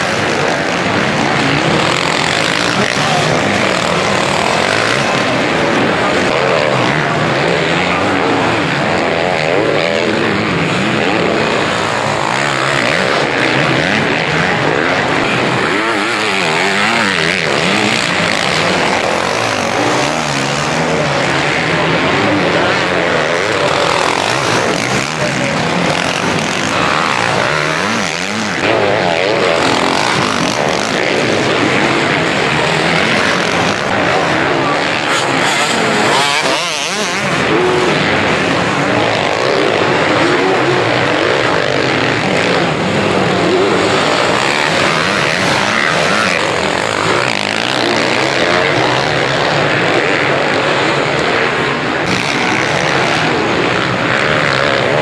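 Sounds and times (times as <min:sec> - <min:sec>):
motorcycle engines revving: 0:00.0 - 0:55.0.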